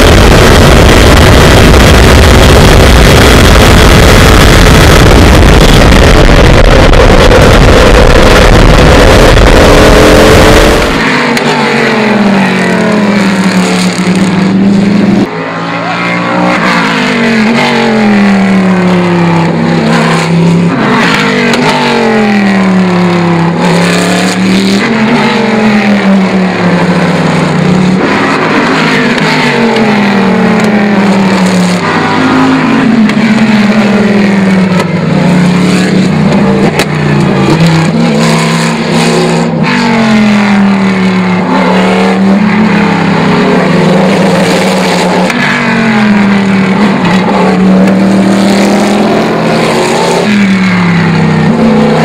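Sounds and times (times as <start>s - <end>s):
wind noise: 0.0s - 11.0s
racing car engine: 0.0s - 52.0s.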